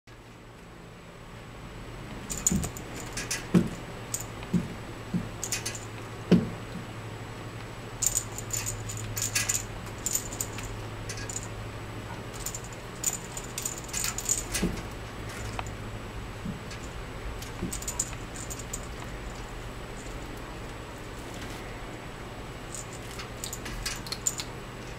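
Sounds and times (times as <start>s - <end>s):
steady low hum: 0.1s - 24.9s
small metallic jingling: 2.2s - 4.6s, 5.3s - 6.0s, 8.0s - 15.8s, 16.6s - 21.1s, 22.6s - 24.9s
paws thumping on floor: 4.4s - 5.3s.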